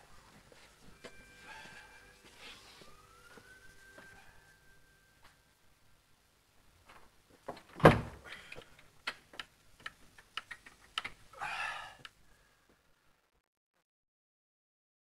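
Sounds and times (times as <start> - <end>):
sharp clicks and knocks: 6.9 - 11.2
wooden door banging: 7.5 - 8.2.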